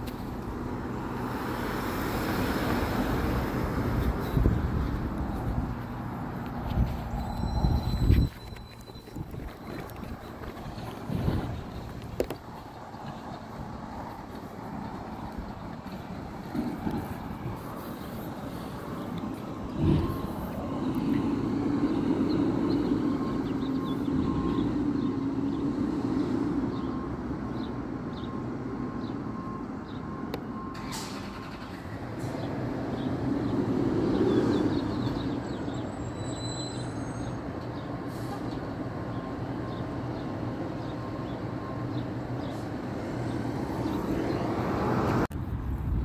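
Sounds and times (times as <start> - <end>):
garbage truck engine rumble: 0.0 - 25.2.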